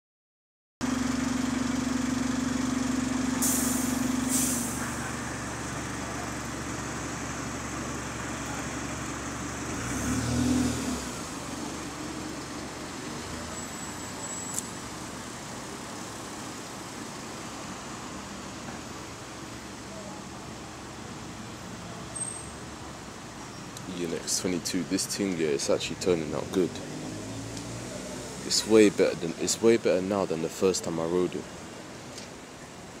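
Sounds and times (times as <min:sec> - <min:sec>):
bus engine idling: 0:00.8 - 0:09.8, 0:11.0 - 0:27.5, 0:28.1 - 0:33.0
traffic noise: 0:00.8 - 0:33.0
bus engine revving: 0:01.0 - 0:19.6, 0:24.9 - 0:29.4
short air hisses: 0:03.4 - 0:05.0.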